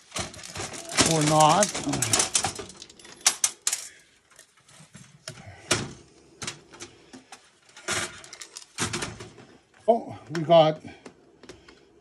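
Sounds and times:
motherboard clicking and rattling in case: 0:00.0 - 0:03.9.

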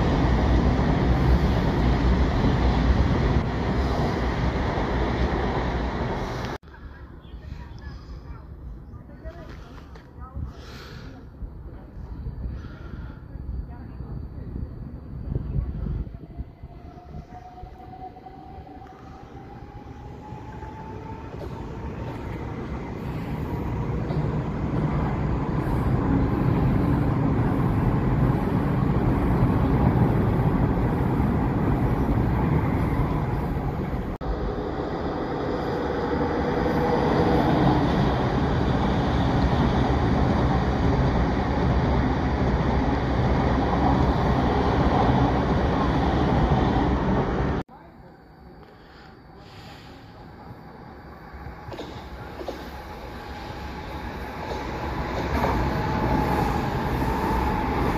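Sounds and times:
train rumble: 0:00.0 - 0:57.9
train wheel hiss: 0:48.6 - 0:57.9.

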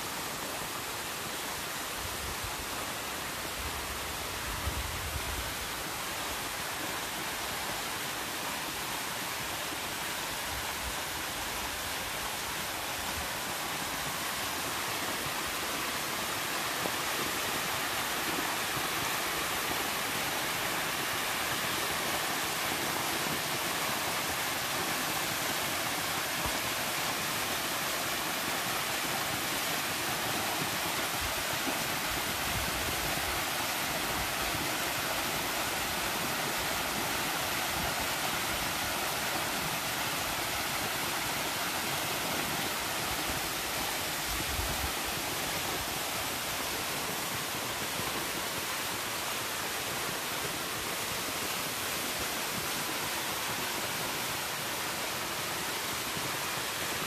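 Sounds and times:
waterfall splashing on rock: 0:05.6 - 0:57.0.

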